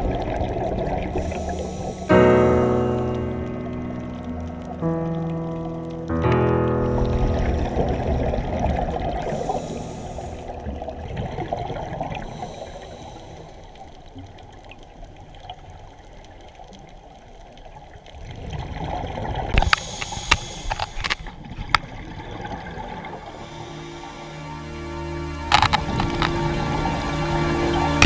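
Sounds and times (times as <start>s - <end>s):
water splashing and trickling: 0.0s - 28.0s.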